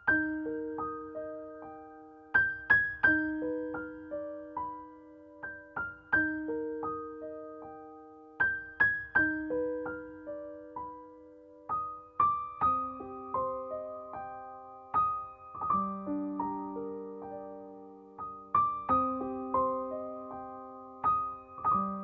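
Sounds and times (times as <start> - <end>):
soft piano melody: 0.0 - 22.0.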